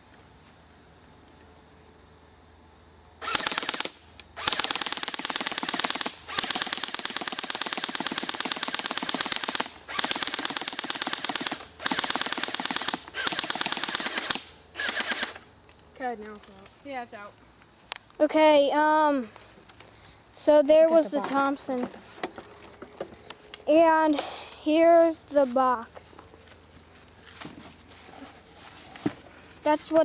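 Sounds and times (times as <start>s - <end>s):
airsoft gun full-auto bursts: 3.2s - 15.4s.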